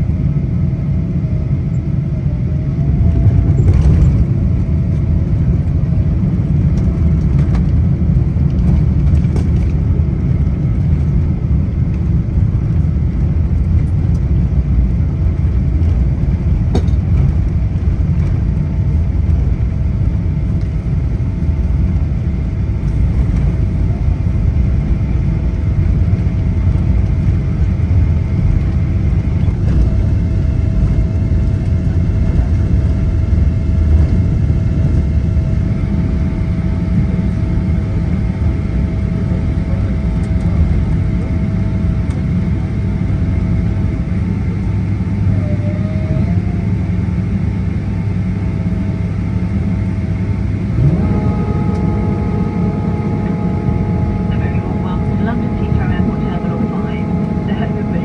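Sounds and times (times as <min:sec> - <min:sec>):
airliner cabin engine rumble: 0:00.0 - 0:58.0
faint steady tones: 0:50.8 - 0:58.0.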